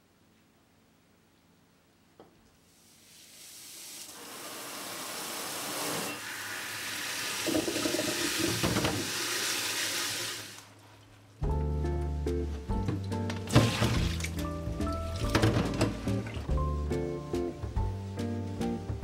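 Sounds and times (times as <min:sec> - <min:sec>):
tap water running into bowl: 0:04.0 - 0:10.6
hand sloshing strawberries in water: 0:13.0 - 0:16.6.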